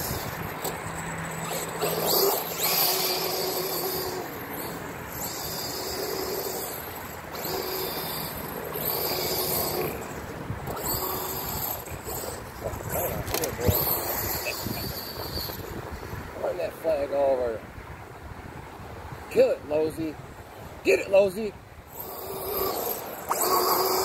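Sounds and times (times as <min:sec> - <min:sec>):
electric toy car motor whining: 0:00.0 - 0:16.2, 0:21.9 - 0:24.0.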